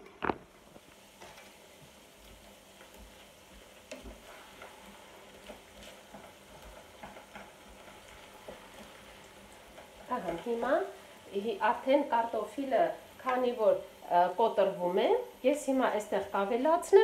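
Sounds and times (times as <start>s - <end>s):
wooden spatula scraping a pan: 0.0s - 12.5s
potatoes sizzling in oil: 0.0s - 17.0s.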